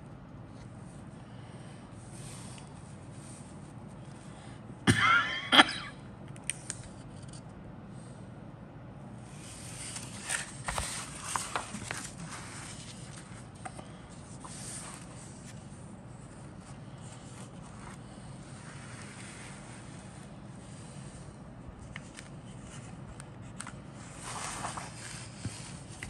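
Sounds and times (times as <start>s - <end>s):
paper pages rustling: 9.3s - 21.0s, 21.8s - 26.0s.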